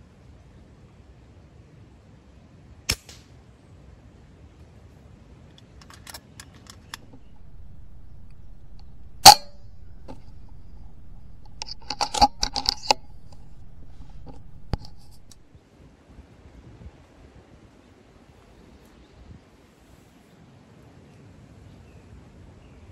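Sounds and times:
mechanical clicks and rattles: 6.8s - 15.4s
air rifle firing crack: 6.9s - 15.4s.

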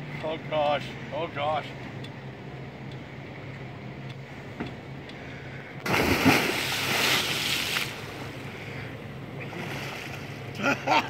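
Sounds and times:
loud splash into water: 5.8s - 8.0s
water churning: 5.8s - 10.4s.

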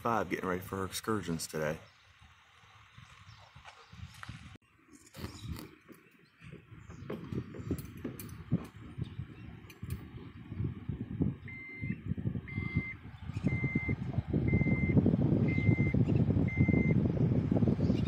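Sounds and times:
backup alarm beeping: 11.4s - 17.0s.

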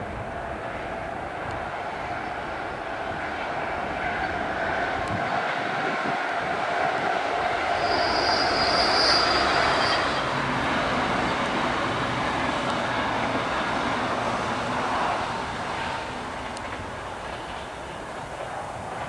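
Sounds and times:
train wheels rushing on rails: 0.0s - 19.0s
high wheel squeal: 6.4s - 11.4s.

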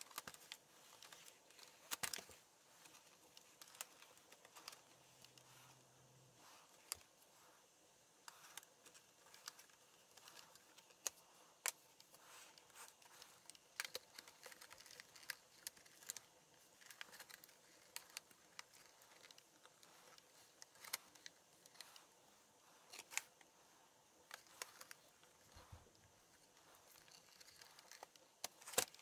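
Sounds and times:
plastic clips clicking and snapping: 24.2s - 29.0s.

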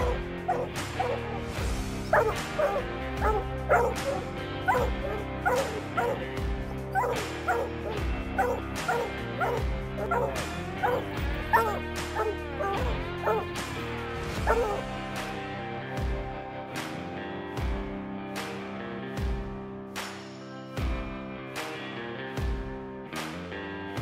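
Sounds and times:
hounds barking: 0.0s - 13.5s, 14.4s - 14.9s
background music with steady beat: 0.0s - 24.0s.

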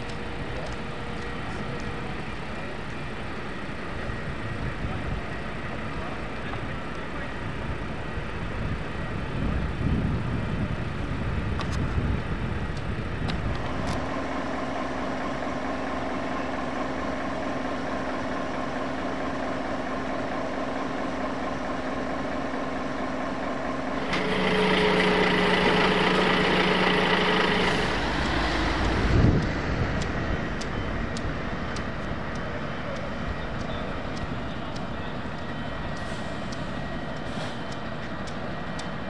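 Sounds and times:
heavy vehicle engine running: 0.0s - 39.0s
faint regular ticking: 28.2s - 39.0s.

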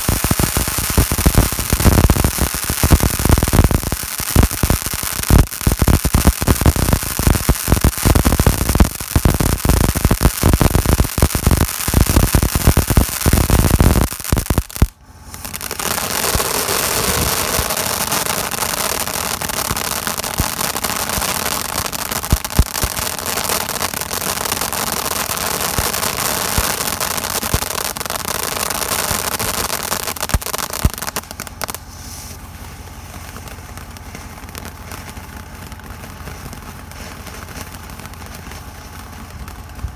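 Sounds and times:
firework fountain crackling: 0.0s - 39.9s
firework pops: 0.0s - 39.9s
hissing spray of sparks: 15.3s - 39.9s.

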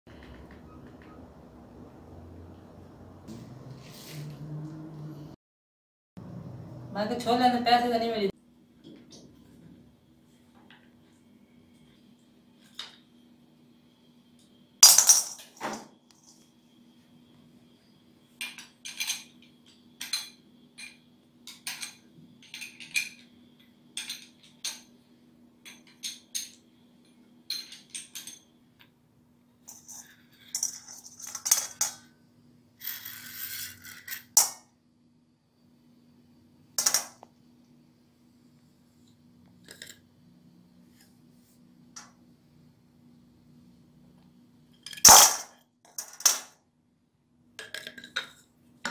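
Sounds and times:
metal parts clinking: 14.8s - 15.6s, 29.7s - 32.0s, 44.8s - 46.5s.

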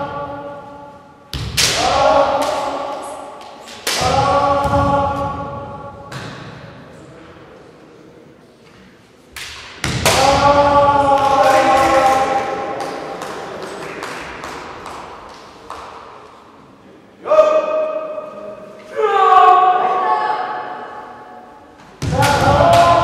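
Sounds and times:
long drawn-out shout: 18.9s - 20.8s.

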